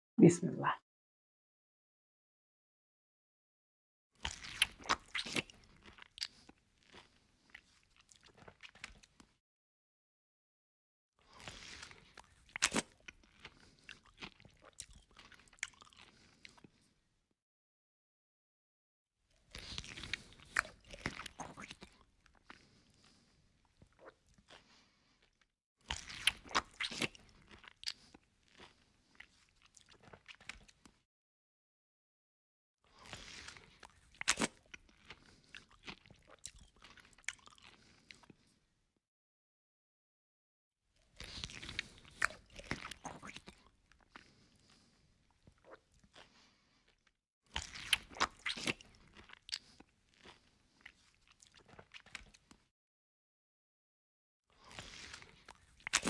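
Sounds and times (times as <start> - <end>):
crisp chewing crunches: 4.2 - 9.4, 11.2 - 16.9, 19.3 - 31.0, 32.9 - 38.5, 41.0 - 52.7, 54.6 - 56.0
wet chewing and smacking: 4.2 - 9.4, 11.3 - 16.9, 19.3 - 31.0, 32.9 - 38.6, 41.0 - 52.7, 54.6 - 56.0.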